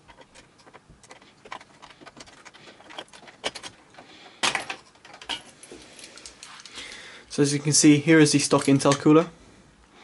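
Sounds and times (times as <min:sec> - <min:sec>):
plastic clatter: 0:00.0 - 0:05.5.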